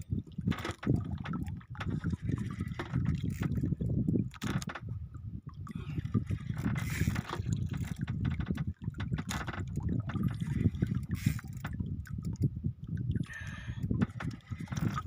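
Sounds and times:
water sloshing against hull: 0.0 - 15.0
scrapes and knocks: 6.4 - 10.3.

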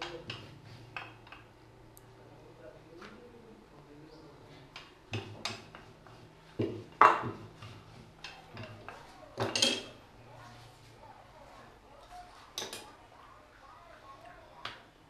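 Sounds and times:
rolling pin knocking on marble: 6.6 - 9.6.

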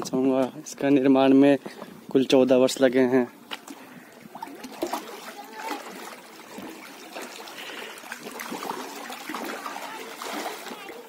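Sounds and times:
water lapping against stone: 3.3 - 11.0
small splashes: 3.4 - 11.0.

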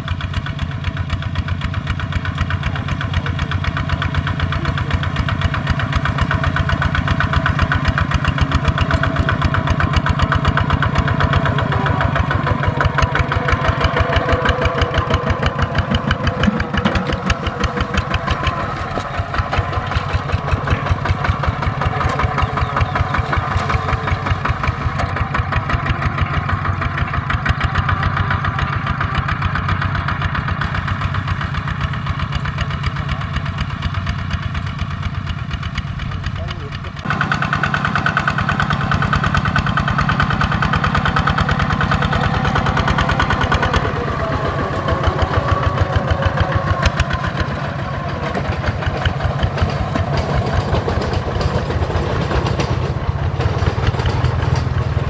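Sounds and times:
diesel engine running under load: 0.0 - 55.0.

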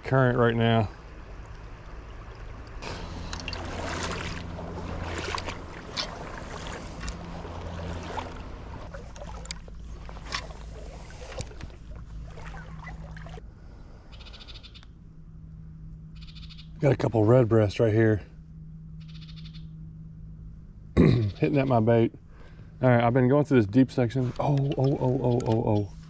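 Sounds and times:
faint low hum: 0.0 - 26.0
water sloshing around legs: 0.8 - 13.4.

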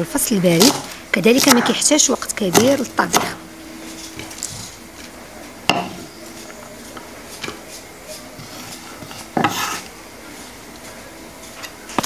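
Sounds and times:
knife scraping clatter on board: 8.4 - 9.9.

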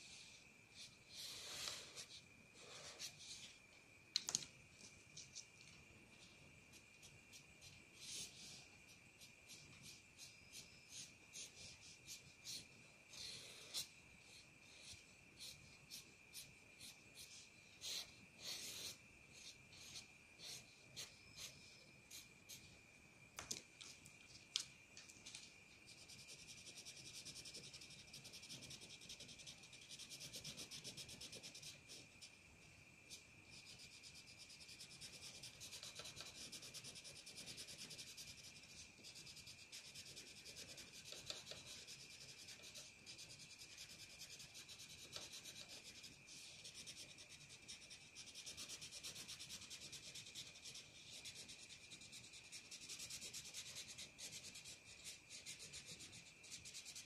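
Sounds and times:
faint high whine: 0.0 - 57.0
crayon scratching on paper: 25.9 - 32.3, 33.1 - 57.0.

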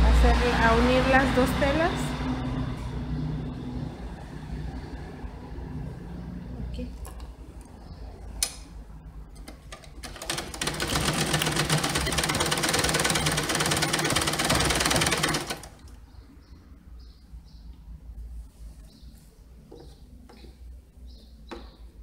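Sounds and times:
sewing machine needle rattling: 9.4 - 15.9.

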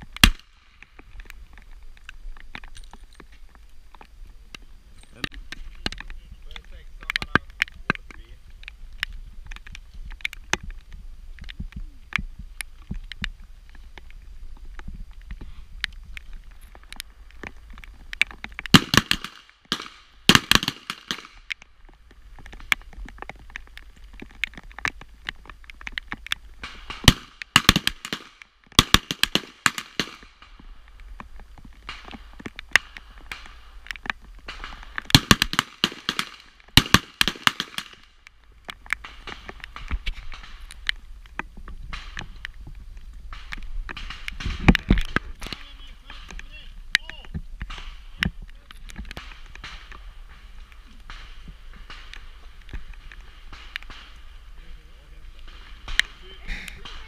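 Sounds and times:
faint distant gunshots: 18.7 - 21.5, 26.6 - 30.7, 34.4 - 38.2.

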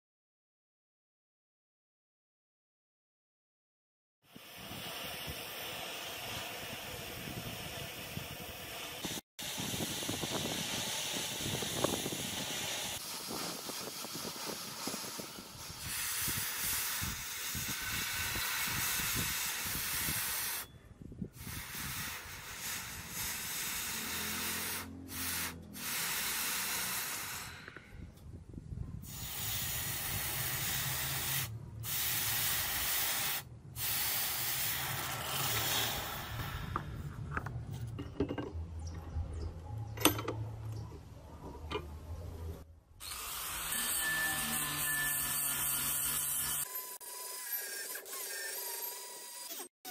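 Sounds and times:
gas torch flame hissing: 4.3 - 20.7, 21.3 - 28.0, 29.0 - 37.1.

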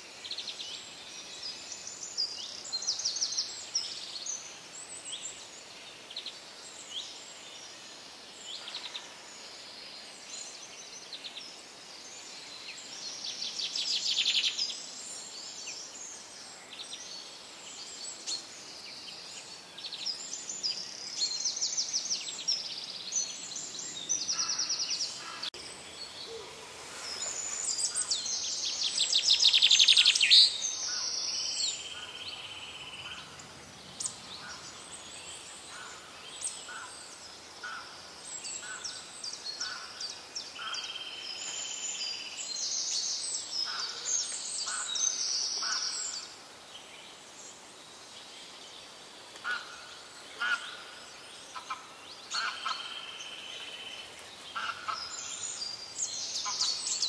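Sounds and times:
birds chirping and trilling: 0.0 - 57.0.

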